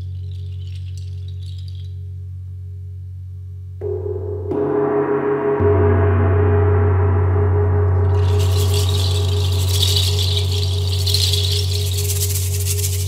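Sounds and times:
gong rubbed with friction mallet: 0:03.8 - 0:13.0
rattling hiss: 0:08.0 - 0:13.0.

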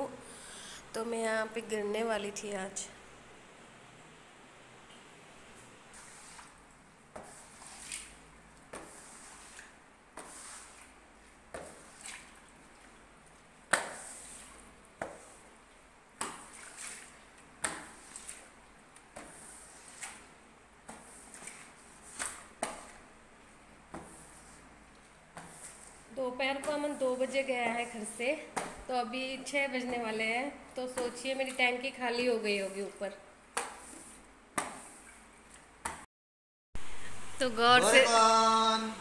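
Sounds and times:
squeegee pushing water on tiles: 0:05.8 - 0:28.9, 0:29.7 - 0:35.7.

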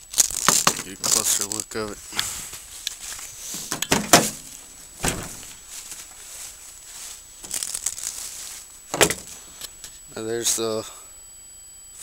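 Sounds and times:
footsteps crunching through dry leaves: 0:00.0 - 0:09.5.

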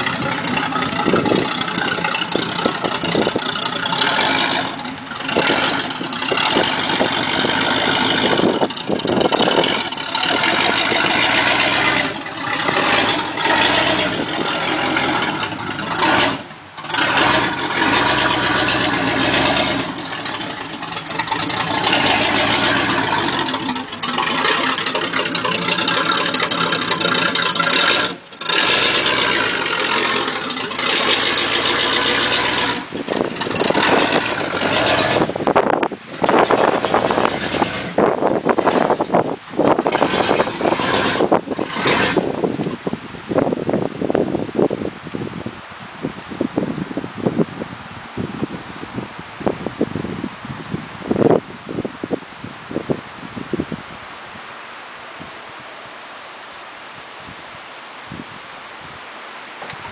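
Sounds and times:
car engine revving: 0:00.0 - 0:44.8.

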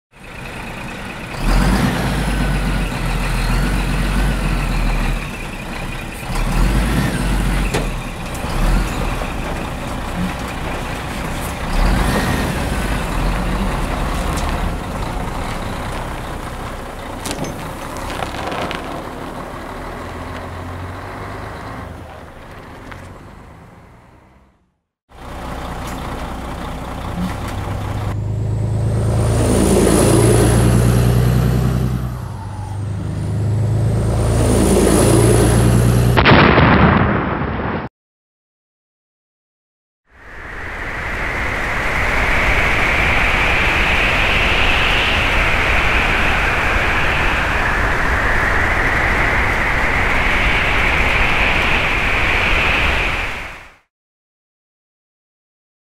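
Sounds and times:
heavy engines running: 0:00.1 - 0:36.2.

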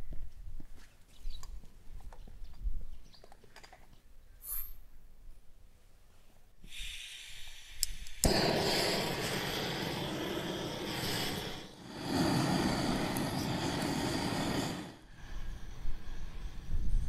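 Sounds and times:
gas hissing: 0:06.6 - 0:17.0
gas torch flame rushing: 0:06.7 - 0:17.0
gas torch lighting pop: 0:07.6 - 0:15.0
torch click: 0:07.7 - 0:14.9.

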